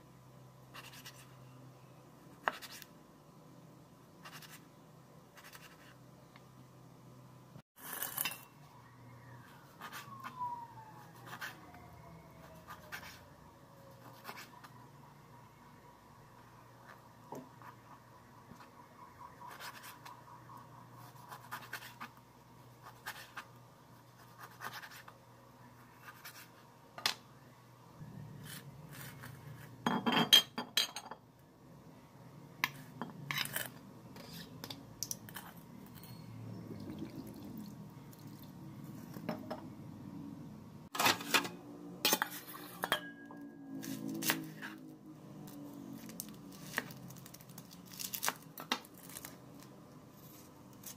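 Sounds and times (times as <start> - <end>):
metal bowl clinking and clattering: 42.1 - 43.4.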